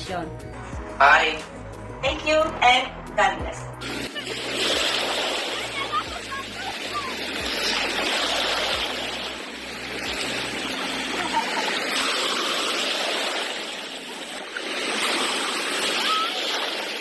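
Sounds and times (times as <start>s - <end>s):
sea water washing and splashing: 3.8s - 17.0s.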